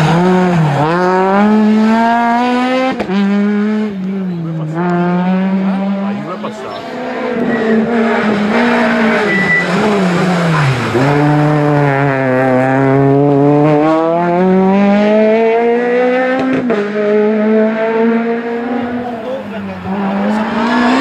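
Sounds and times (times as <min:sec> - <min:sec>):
rally car engine revving: 0:00.0 - 0:21.0
tyre squeal: 0:06.7 - 0:07.8, 0:09.0 - 0:10.7.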